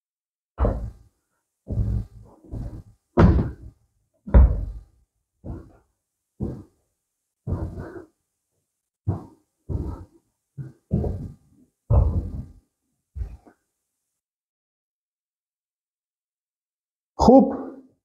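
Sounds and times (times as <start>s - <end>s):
footsteps dull thuds: 0.6s - 6.8s, 7.4s - 8.2s, 9.0s - 13.6s.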